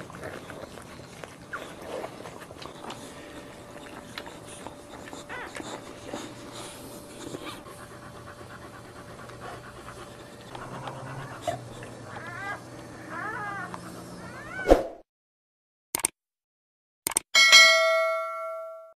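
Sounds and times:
dog whimpering: 0.0 - 8.0, 9.8 - 14.7
dog panting rapidly: 0.0 - 12.2.

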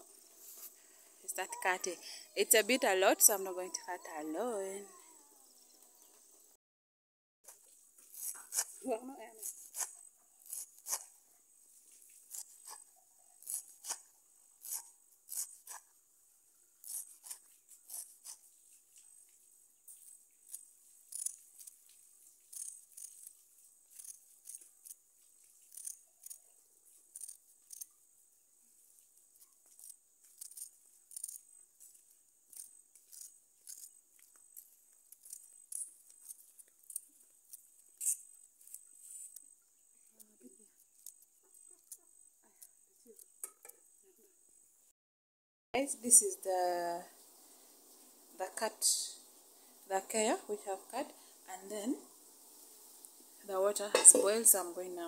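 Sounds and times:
leaves tearing with crisp snaps: 9.4 - 11.1.

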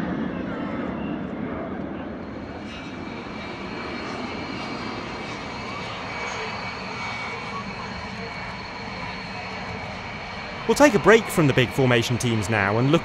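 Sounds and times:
jet engine whine: 0.0 - 13.0.

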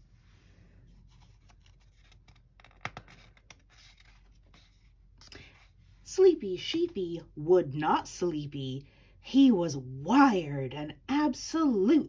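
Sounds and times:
paper page rustling: 0.9 - 5.8.

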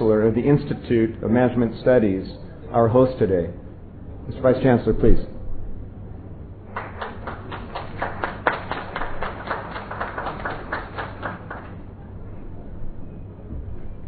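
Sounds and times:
small audience applauding: 6.7 - 11.9.

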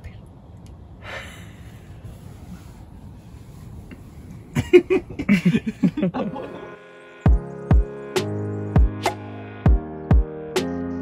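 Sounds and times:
person laughing: 4.5 - 6.8.

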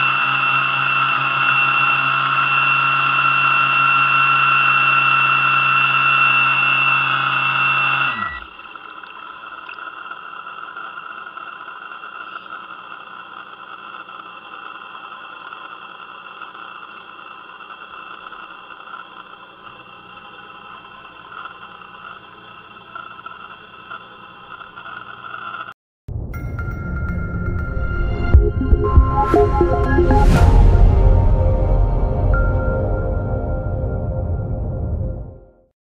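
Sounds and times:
electric motor whining: 0.0 - 25.7
faint steady whine: 0.0 - 25.7
music: 26.1 - 35.7.

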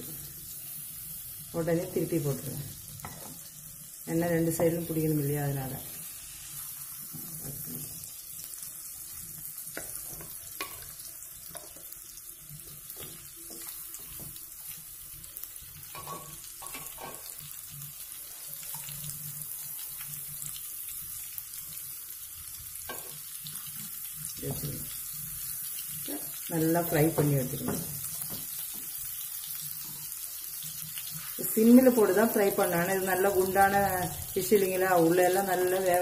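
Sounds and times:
fish sizzling in a pan: 0.0 - 36.0.

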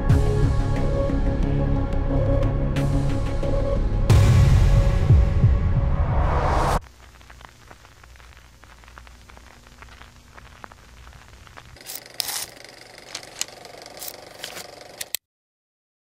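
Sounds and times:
film crackle with clicks and pops: 6.7 - 15.2
low steady hum: 6.8 - 14.8.

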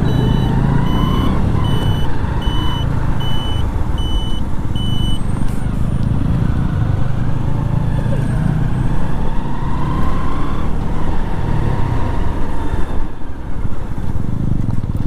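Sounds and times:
turn-signal buzzer beeping: 0.0 - 5.2
motorcycle running at low speed: 0.0 - 15.0
road and wind noise: 0.0 - 15.0.

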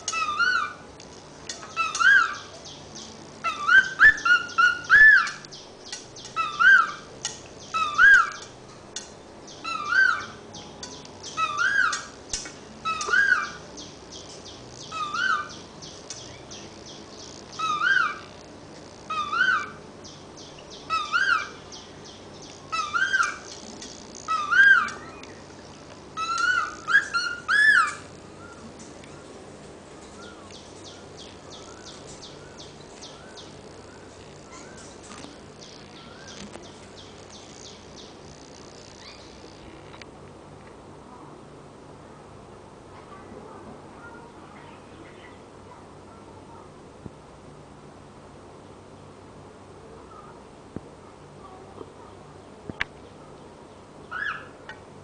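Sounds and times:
soft bird chirps: 30.1 - 39.9.

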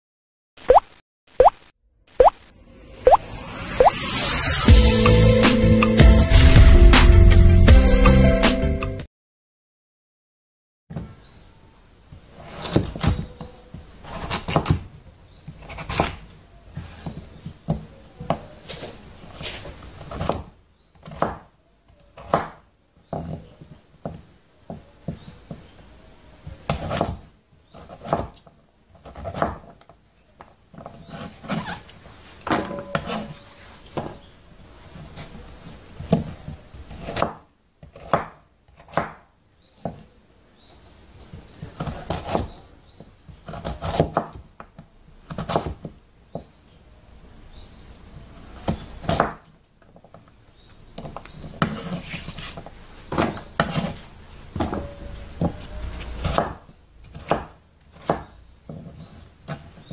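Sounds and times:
knife scraping: 30.9 - 34.3, 51.3 - 56.4.

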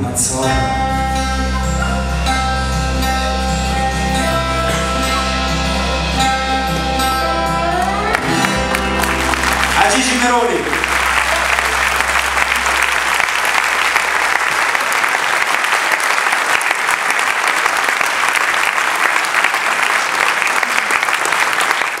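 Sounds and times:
audience applauding: 8.0 - 22.0.

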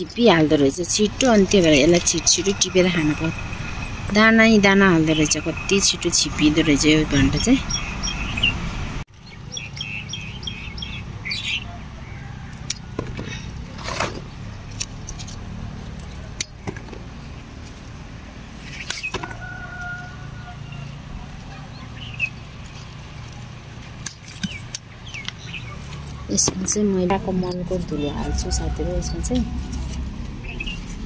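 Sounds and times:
birds chirping: 0.0 - 13.6, 18.6 - 29.6, 30.3 - 31.0
distant traffic hum: 0.0 - 31.0.

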